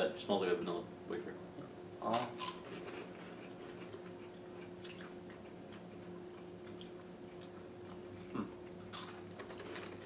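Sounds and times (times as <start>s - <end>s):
steady low hum: 0.0s - 10.0s
chewing crisp wafer sticks: 2.1s - 10.0s.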